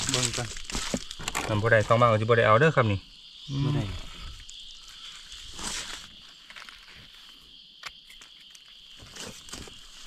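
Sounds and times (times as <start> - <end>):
footsteps in dry leaves: 0.0 - 1.2, 4.8 - 6.8
insect buzzing: 0.0 - 10.0.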